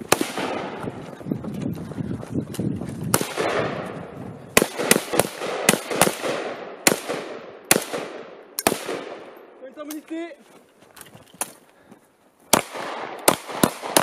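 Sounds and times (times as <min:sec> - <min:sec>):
rifle shots echoing: 0:00.0 - 0:01.0, 0:03.1 - 0:09.6, 0:12.5 - 0:14.0.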